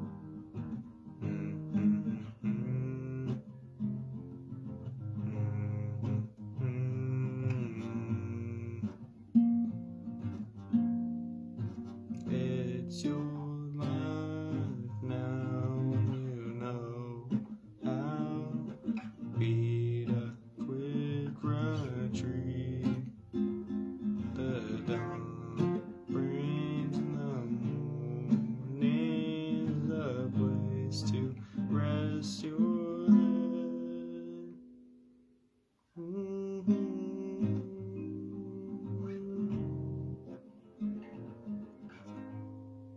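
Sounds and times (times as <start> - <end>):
classical guitar playing: 0.0 - 42.9
person humming: 1.2 - 3.5, 5.2 - 9.1, 12.2 - 23.1, 24.2 - 34.6, 36.0 - 40.2.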